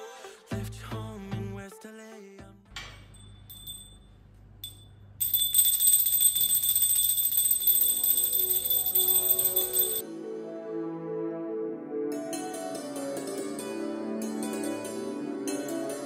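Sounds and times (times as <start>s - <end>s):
hand bell ringing: 3.2s - 10.0s
music with plucked notes: 12.0s - 16.0s.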